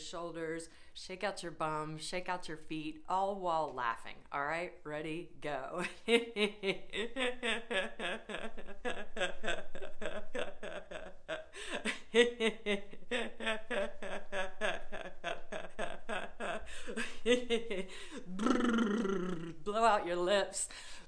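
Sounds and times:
woman laughing: 5.8 - 20.4.

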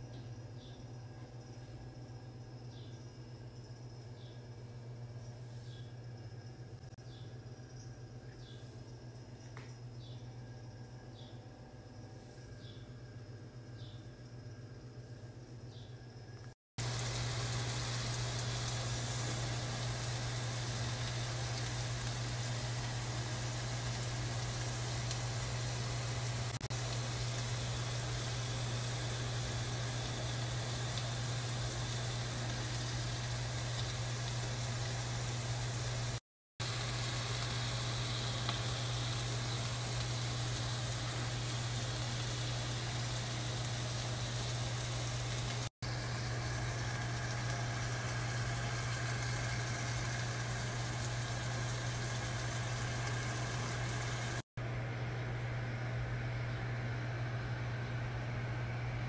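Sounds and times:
chicken sizzling in a pan: 16.8 - 54.4.

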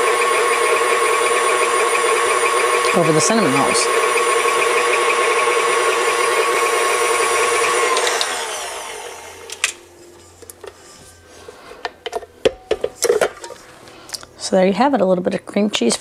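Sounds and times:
stand mixer running: 0.0 - 9.9
mixer handling clicks and knocks: 12.0 - 13.6.

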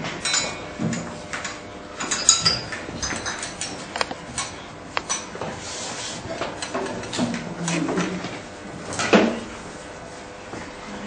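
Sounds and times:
glass vessels clinking: 0.2 - 5.4.

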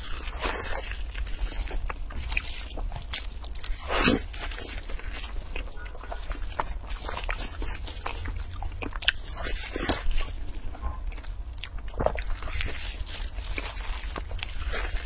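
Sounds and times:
low hum: 0.0 - 15.0
plastic wrap crinkling: 0.0 - 15.0
wet biting and chewing: 0.0 - 15.0.

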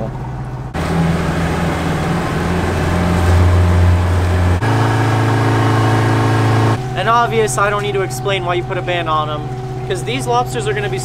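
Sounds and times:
outboard motor drone: 0.0 - 11.0
steady hum: 0.0 - 11.0
rushing water of wake: 0.8 - 6.8.

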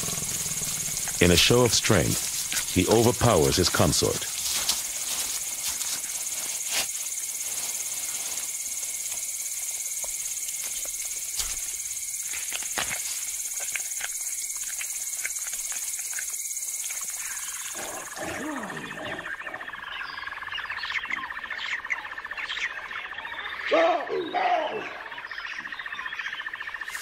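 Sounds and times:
insects shrilling: 0.0 - 19.8
birds calling: 0.0 - 27.0.

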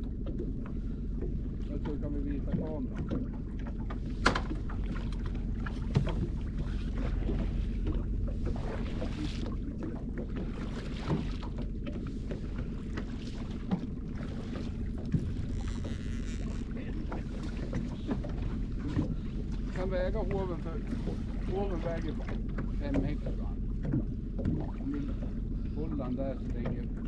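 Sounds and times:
boat motor running: 0.0 - 27.0
knocks on boat deck: 3.9 - 4.9.

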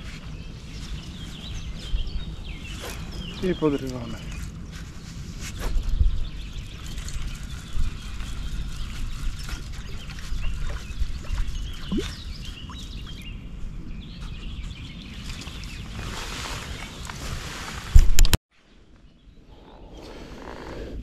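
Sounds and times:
birds calling: 0.0 - 4.5
wind buffeting microphone: 0.0 - 18.2.

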